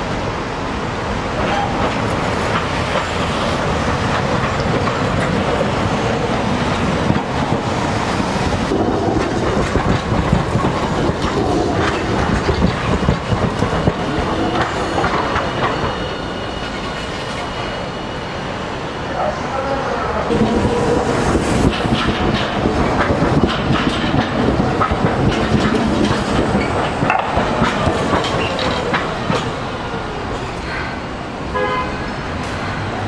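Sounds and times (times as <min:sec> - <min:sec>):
tram wheels clattering over rail joints: 0:00.0 - 0:33.0
high wheel squeal: 0:13.9 - 0:18.8.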